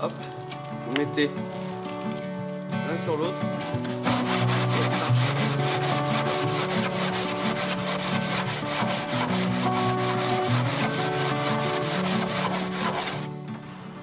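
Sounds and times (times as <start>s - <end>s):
background music with held notes: 0.0s - 14.0s
sandpaper rasping on fiberglass: 4.0s - 13.3s.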